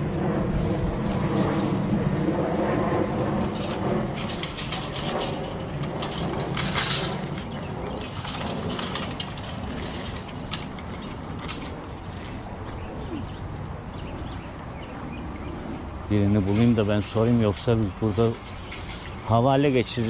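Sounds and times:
shopping cart rattling: 3.4 - 12.2, 16.1 - 20.0.

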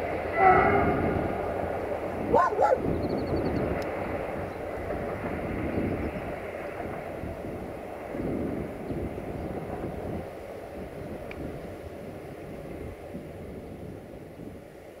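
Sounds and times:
passenger train rumbling: 0.0 - 15.0
dog barking: 2.3 - 2.9.

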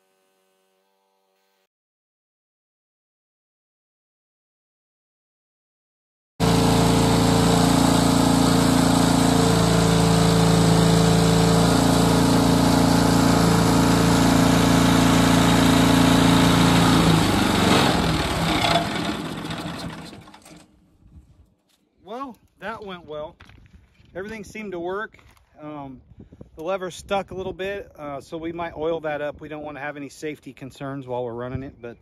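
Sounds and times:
engine running and winding down: 6.4 - 20.7.

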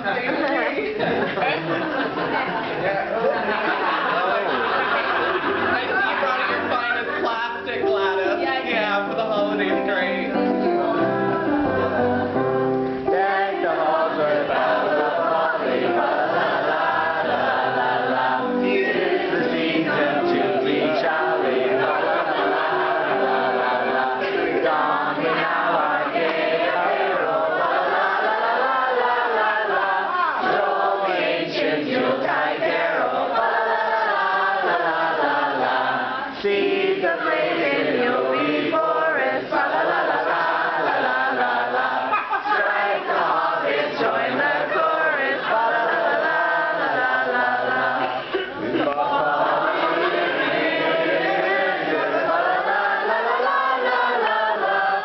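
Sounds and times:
group singing a carol: 3.4 - 55.0.

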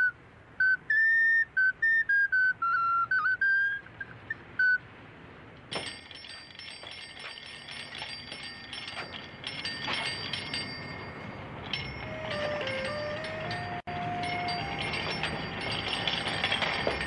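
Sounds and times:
thin high ringing: 5.7 - 17.0
wind-up toy clockwork whirring: 5.9 - 11.0, 11.7 - 17.0.

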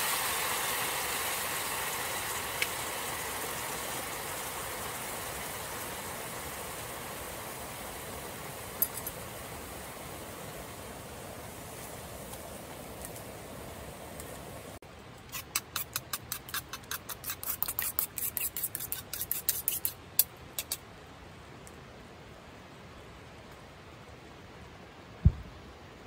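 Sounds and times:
low thump: 25.2 - 25.5.

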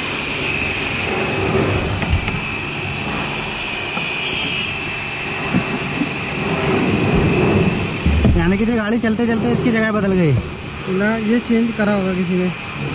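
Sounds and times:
machine whine and rumble: 0.0 - 12.9.

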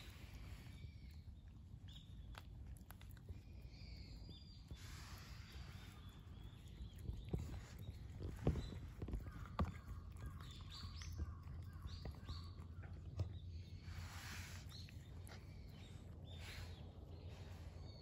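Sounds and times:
cats lapping and chewing: 0.0 - 18.0
low outdoor rumble: 0.0 - 18.0.

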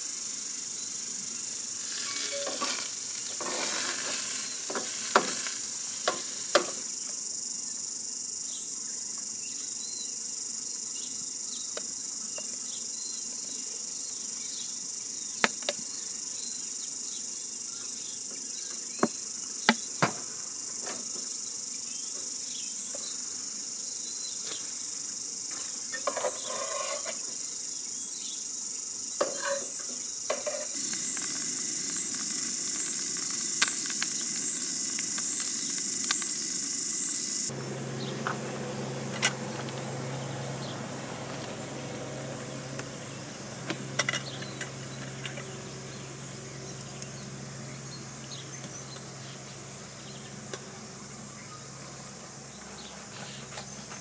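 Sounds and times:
food sizzling in a frying pan: 0.0 - 6.8, 30.5 - 37.6
insects chirring: 0.0 - 54.0.

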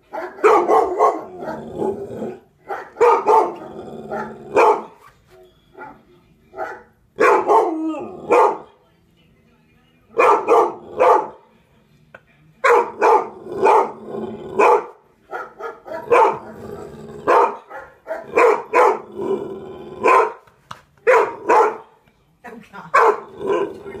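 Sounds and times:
pet dog barking: 0.0 - 5.1, 5.7 - 8.7, 10.2 - 11.4, 12.6 - 14.0, 14.6 - 16.6, 17.2 - 19.1, 20.0 - 20.4, 21.0 - 22.0, 22.9 - 24.0
dog barking on television: 0.0 - 8.9, 10.1 - 11.6, 12.6 - 22.0, 22.9 - 24.0.

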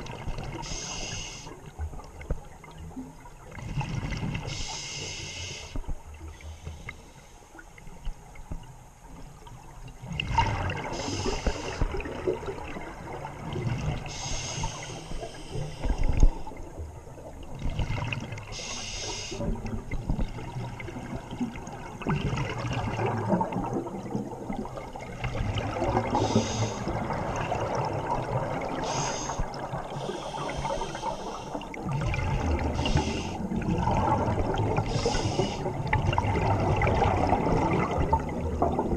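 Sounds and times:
exhaled bubbles gurgling: 0.0 - 6.8, 7.8 - 38.9
diver inhaling through regulator: 0.6 - 1.6, 4.5 - 5.8, 11.0 - 12.0, 14.1 - 16.3, 18.6 - 19.5, 26.1 - 27.0, 28.8 - 31.7, 32.5 - 33.5, 34.8 - 35.8.

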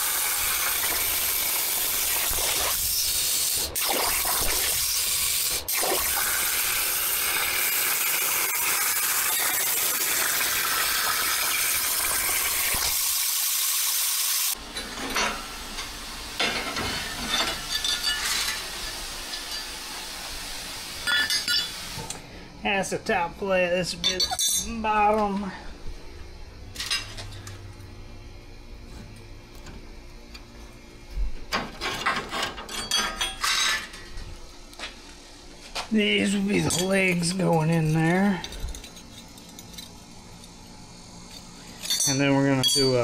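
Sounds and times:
plasma cutter torch hissing: 0.0 - 14.6
steel pieces clinking and knocking: 16.7 - 18.6, 32.0 - 34.0, 41.3 - 43.0.

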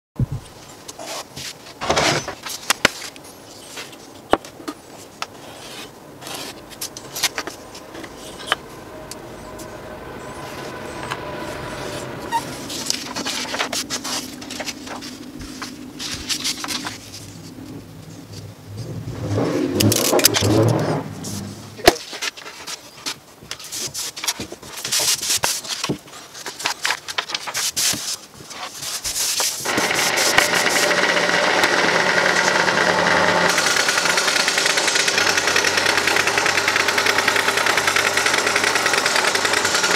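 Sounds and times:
paper rustling on plastic mat: 0.7 - 8.6, 11.4 - 17.7, 21.2 - 30.9
scroll saw running: 5.6 - 7.4, 8.0 - 14.8, 29.6 - 39.9.

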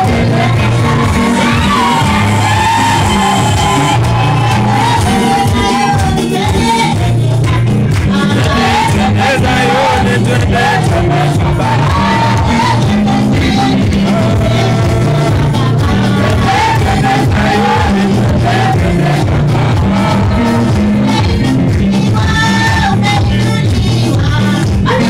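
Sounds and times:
keyboard bass and drum beat: 0.0 - 25.0
women singing gospel song: 0.0 - 25.0.

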